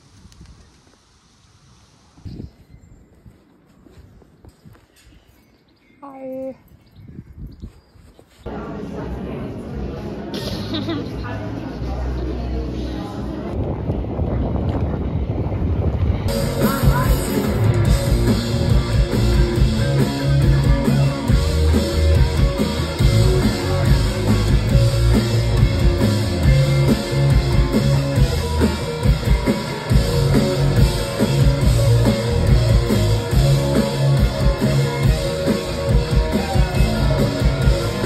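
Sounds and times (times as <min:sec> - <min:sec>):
bass guitar: 0:08.5 - 0:38.0
electric guitar: 0:16.2 - 0:38.0
drum kit: 0:16.3 - 0:38.0.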